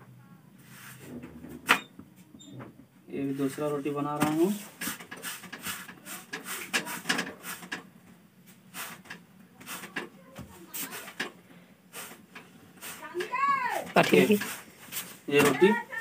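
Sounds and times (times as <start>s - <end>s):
flatbread pressed on griddle: 3.4s - 16.0s.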